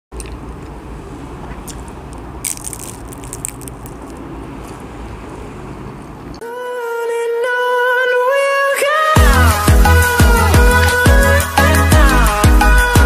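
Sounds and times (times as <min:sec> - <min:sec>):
crunchy food chewing: 0:01.6 - 0:04.8
music: 0:06.4 - 0:13.0.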